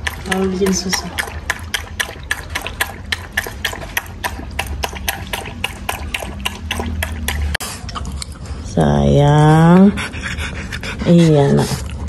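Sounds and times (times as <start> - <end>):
dog lapping from plastic bowl: 0.0 - 8.7.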